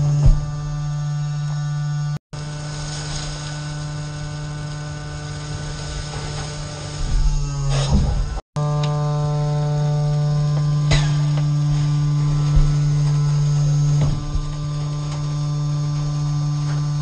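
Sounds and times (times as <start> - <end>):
hydraulic drive humming: 0.0 - 17.0
short thump: 13.9 - 14.7.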